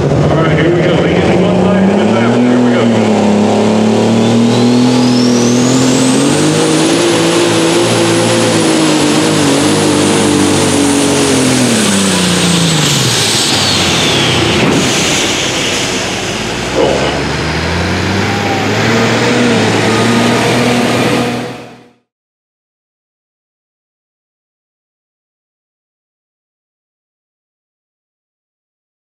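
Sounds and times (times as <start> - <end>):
diesel engine under load: 0.0 - 22.1
turbo whistle: 4.1 - 6.3, 18.2 - 21.6.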